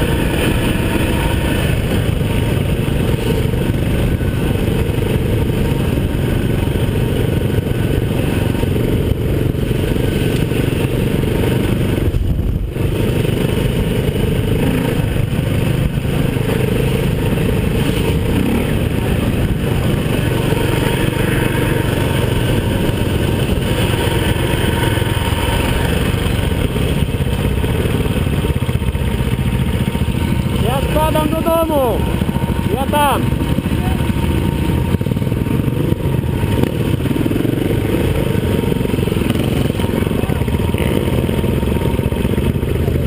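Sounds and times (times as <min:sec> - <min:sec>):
wind rush over microphone: 0:00.0 - 0:28.6
motorcycle engine running hard: 0:00.0 - 0:43.0.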